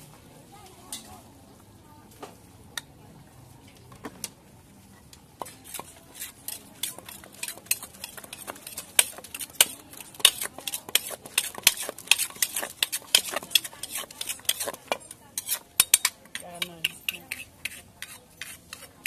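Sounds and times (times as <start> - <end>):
spoon scraping in mortar: 5.4 - 19.0
wooden pestle pounding in mortar: 6.8 - 18.9.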